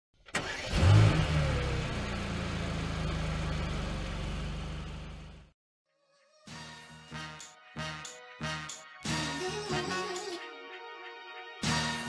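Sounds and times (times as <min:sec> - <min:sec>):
car engine revving and idling: 0:00.4 - 0:05.5.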